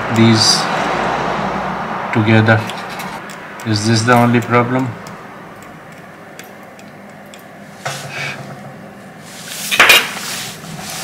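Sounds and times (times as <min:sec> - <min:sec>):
scraping rustles: 0:09.2 - 0:11.0.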